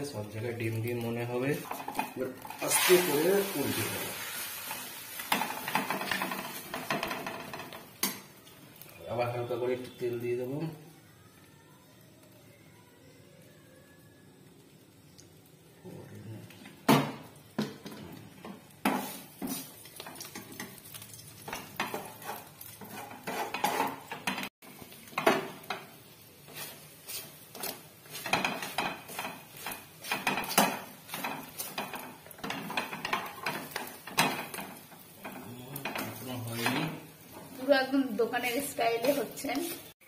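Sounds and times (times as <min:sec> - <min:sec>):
oil sizzling: 0:00.0 - 0:40.0
utensils scraping a frying pan: 0:01.6 - 0:08.3, 0:17.8 - 0:40.0.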